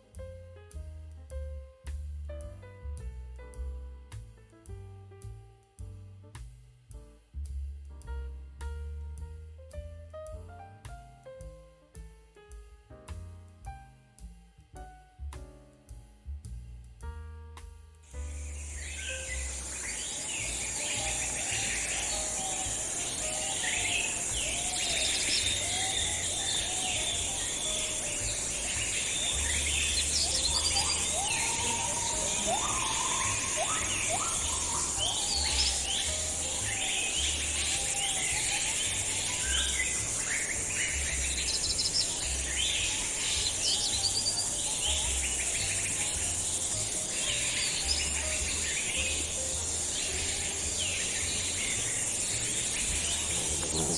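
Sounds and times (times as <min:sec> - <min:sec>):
steady high hiss: 0:18.0 - 0:53.9
birds chirping and calling: 0:18.2 - 0:53.9
low rumble: 0:48.1 - 0:53.9.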